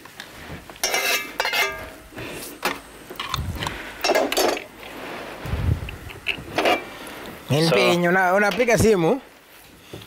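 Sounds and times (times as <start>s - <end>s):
dishes and utensils clinking: 0.8s - 2.0s, 4.0s - 4.7s, 6.2s - 6.9s.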